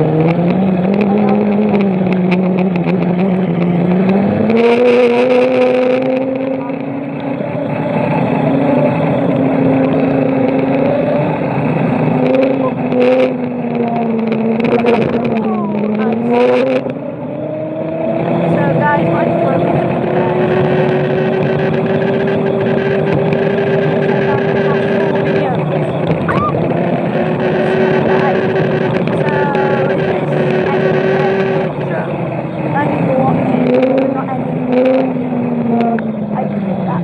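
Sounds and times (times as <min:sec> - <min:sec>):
electric scooter motor whining: 0:17.0 - 0:37.0.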